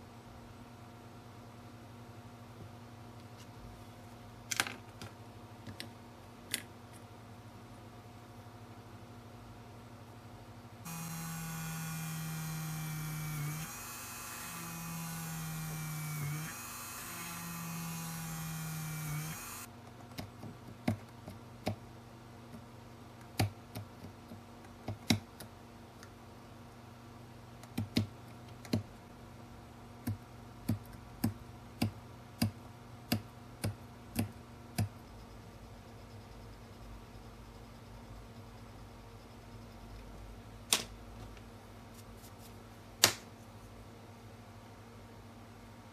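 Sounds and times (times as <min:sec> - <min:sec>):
rotary tool drilling plastic: 0:10.9 - 0:19.7.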